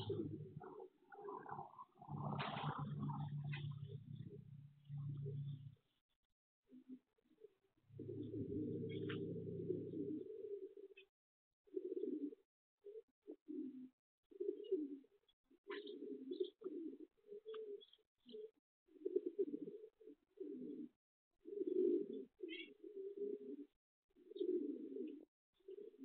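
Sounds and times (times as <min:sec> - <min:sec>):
pigeons cooing: 0:00.0 - 0:05.7, 0:06.7 - 0:11.1, 0:11.7 - 0:26.0.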